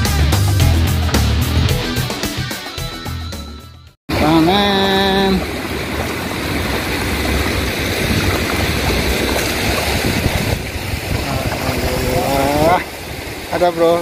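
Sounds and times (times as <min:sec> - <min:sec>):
water sloshing and splashing: 0:04.1 - 0:14.0.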